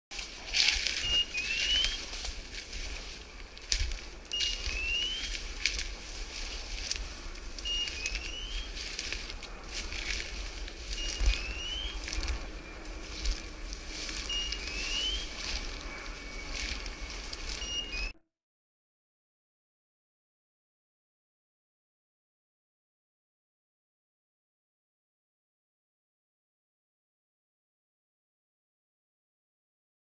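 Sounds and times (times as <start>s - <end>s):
footsteps through dry bracken: 0.1s - 18.1s
wind buffeting microphone: 0.4s - 17.6s
high tone and rising chirp: 0.5s - 18.2s.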